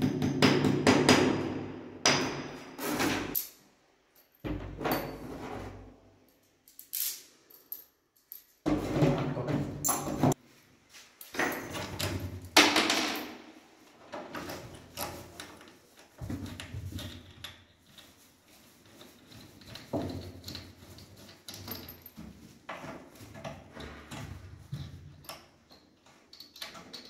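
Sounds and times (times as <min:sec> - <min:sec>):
wooden cabinet knocking and scraping: 0:08.7 - 0:10.4.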